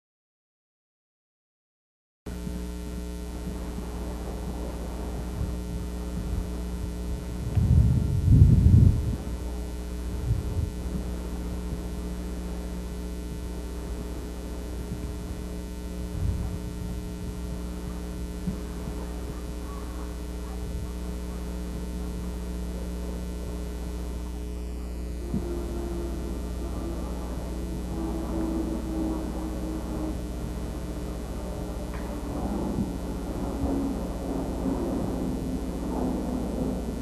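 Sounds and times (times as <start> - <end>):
steady electrical hum: 2.3 - 37.0
wavering tone: 16.2 - 37.0.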